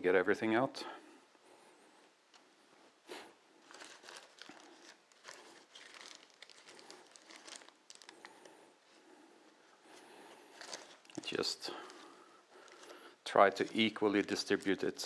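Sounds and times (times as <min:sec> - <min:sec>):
baking paper crinkling: 0:03.6 - 0:08.6, 0:10.5 - 0:15.0.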